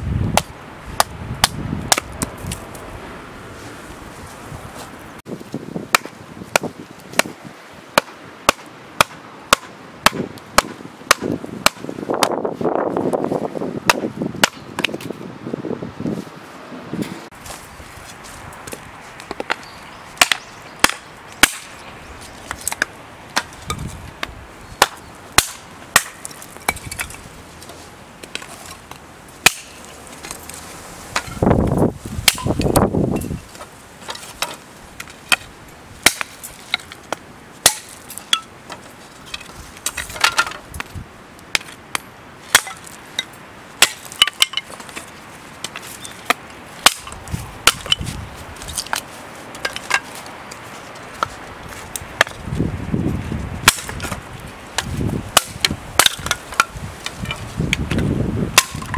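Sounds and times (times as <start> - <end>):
sharp chopping blows: 0.3 - 2.6, 5.9 - 12.5, 13.8 - 15.1, 31.1 - 33.2, 45.7 - 48.2, 53.6 - 54.2, 54.8 - 58.9
scraping or rustling noise: 56.3 - 58.2.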